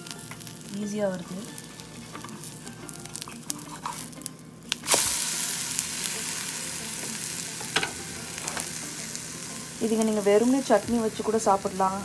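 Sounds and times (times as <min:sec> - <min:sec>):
pancake sizzling in frying pan: 0:00.0 - 0:12.0.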